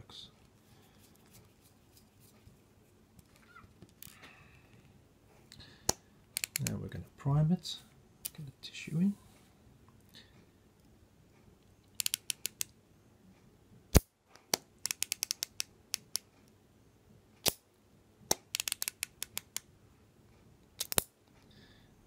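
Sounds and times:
insulin pen dial clicking: 5.9s - 6.7s, 12.0s - 12.7s, 14.8s - 16.2s, 18.5s - 19.6s.

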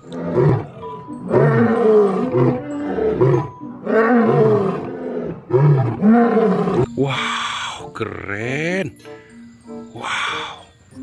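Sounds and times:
lion roaring: 0.0s - 6.9s.

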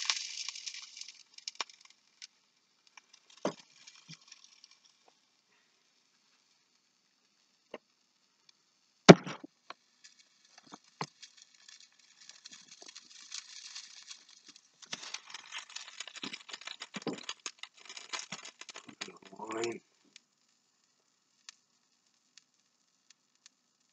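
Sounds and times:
fish frying and crackling: 0.0s - 23.9s
sharp knock: 9.1s - 9.5s.

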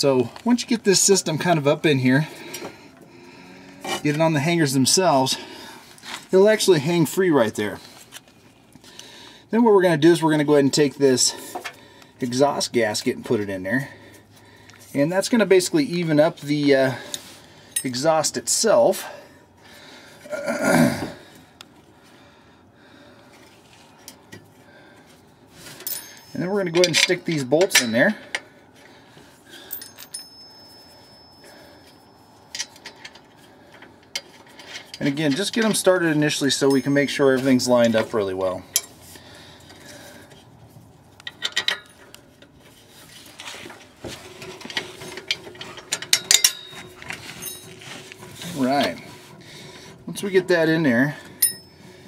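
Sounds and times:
man grunting: 20.3s - 21.2s
bolts clicking and scraping on metal: 23.3s - 30.6s, 31.8s - 52.0s.

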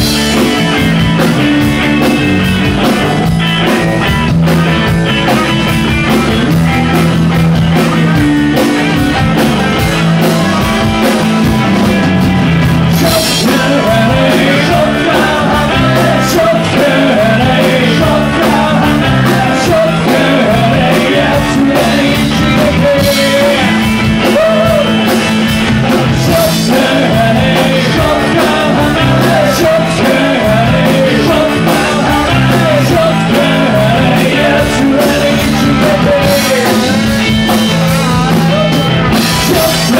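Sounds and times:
rock band playing: 0.0s - 39.9s
man singing lead vocal: 12.8s - 39.9s.

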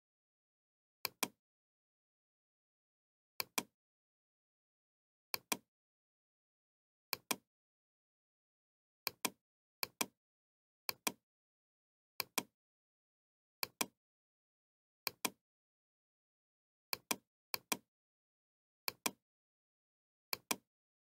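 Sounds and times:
computer mouse clicking: 1.0s - 1.4s, 3.4s - 3.7s, 7.1s - 7.4s, 10.9s - 11.2s, 12.2s - 12.5s, 13.6s - 13.9s, 18.9s - 19.2s, 20.3s - 20.6s.

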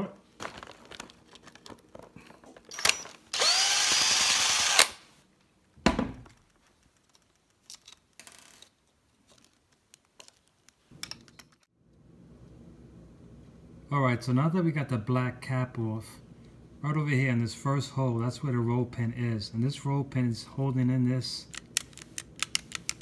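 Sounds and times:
power screwdriver running: 2.7s - 5.0s
thump: 5.8s - 6.3s.

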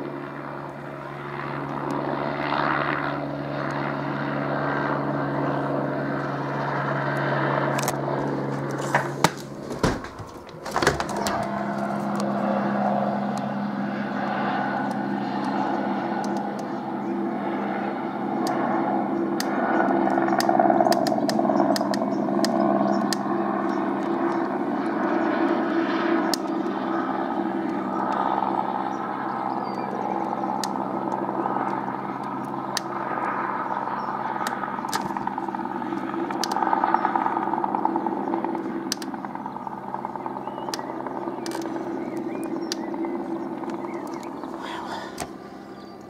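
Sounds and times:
helicopter flying overhead: 0.0s - 46.0s
sharp clicks: 7.7s - 8.0s, 8.6s - 12.4s, 16.2s - 16.8s, 19.4s - 24.2s, 36.0s - 36.7s, 38.9s - 39.1s, 40.6s - 43.0s, 43.6s - 46.0s.

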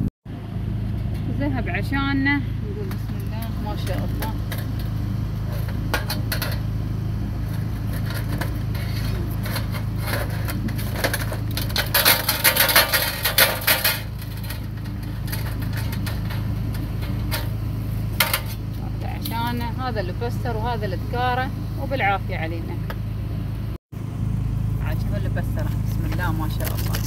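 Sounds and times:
wire basket scraping metal tray: 3.0s - 19.7s.

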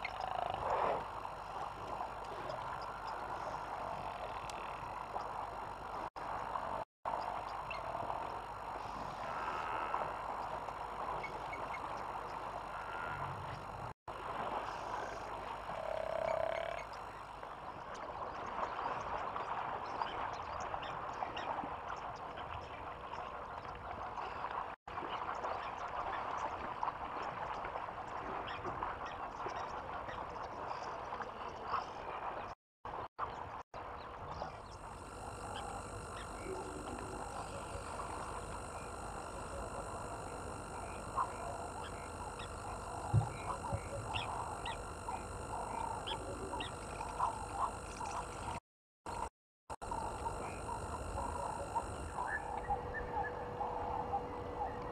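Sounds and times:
frogs croaking: 0.0s - 24.4s, 28.5s - 54.9s.

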